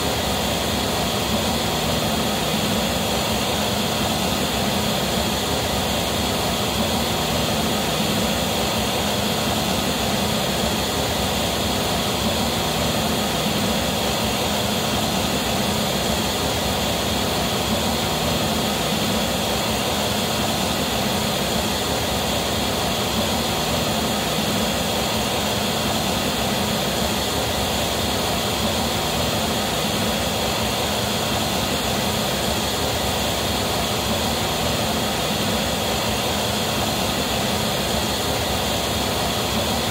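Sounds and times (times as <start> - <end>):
pink noise through loudspeakers: 0.0 - 39.9.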